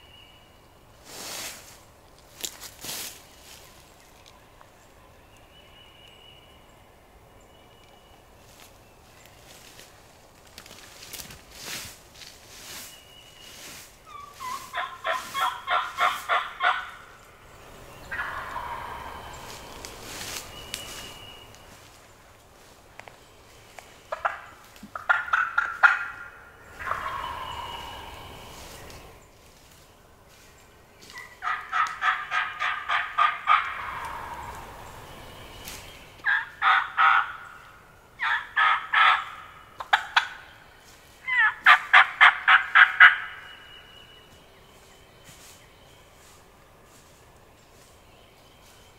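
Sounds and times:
turkey gobbling: 14.1 - 17.1, 17.9 - 21.0, 24.1 - 29.0, 31.1 - 35.1, 36.2 - 37.6, 38.2 - 40.5, 41.2 - 43.4.

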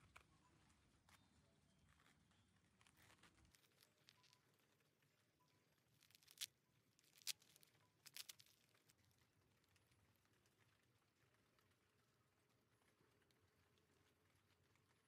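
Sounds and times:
fruit rind cracking and tearing: 2.9 - 4.4, 5.9 - 9.0.

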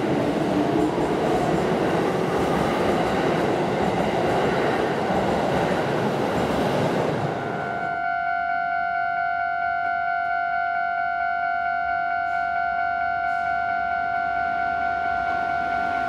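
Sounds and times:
level crossing warning bell: 7.4 - 16.0.

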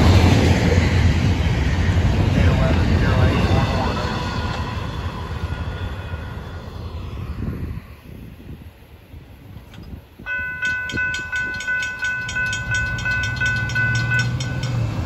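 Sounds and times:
vehicle engines rumbling: 0.0 - 15.0
railroad crossing bell ringing: 10.2 - 15.0.

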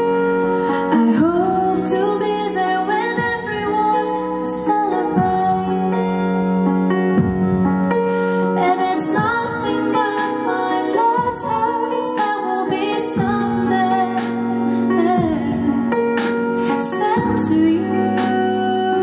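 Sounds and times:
instrumental accompaniment: 0.0 - 19.0
woman singing with vibrato: 0.9 - 6.5, 8.6 - 16.0, 16.8 - 19.0.

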